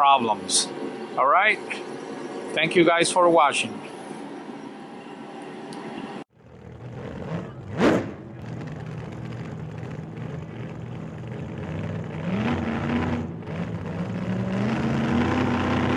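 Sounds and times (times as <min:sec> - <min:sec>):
car engine revving: 0:06.4 - 0:15.9.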